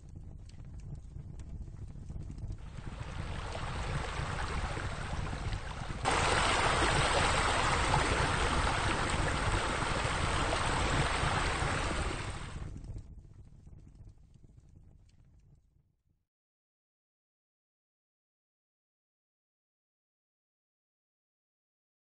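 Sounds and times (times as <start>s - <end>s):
rushing water: 2.6s - 12.6s.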